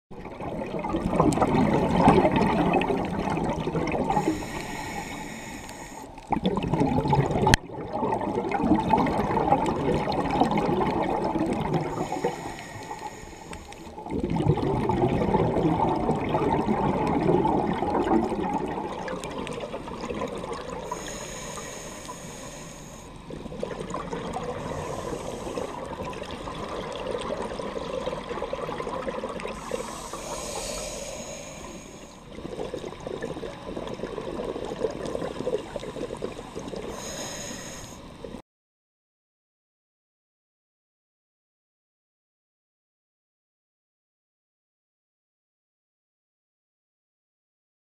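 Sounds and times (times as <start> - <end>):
exhaled bubbles gurgling underwater: 0.1 - 38.4
regulator inhalation hiss: 4.1 - 6.2, 11.9 - 14.0, 20.8 - 23.3, 24.4 - 26.0, 29.5 - 32.3, 35.6 - 38.3.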